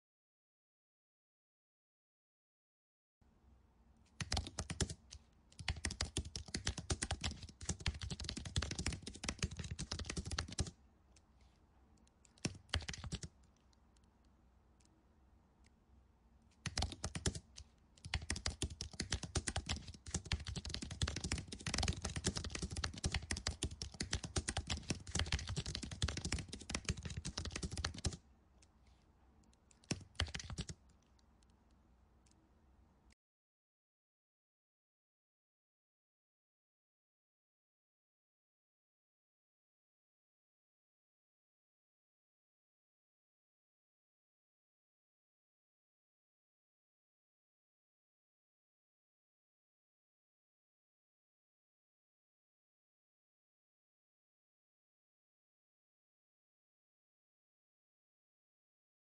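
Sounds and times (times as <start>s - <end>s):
computer keyboard typing: 4.2s - 10.7s, 12.0s - 14.1s, 16.6s - 28.2s, 29.6s - 31.2s.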